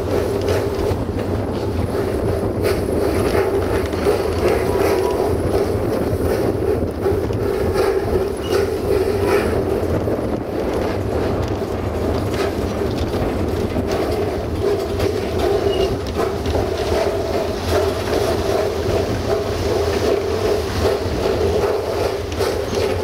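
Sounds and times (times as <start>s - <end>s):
steam train rumbling: 0.0s - 23.0s
wheels clicking on track: 0.0s - 23.0s.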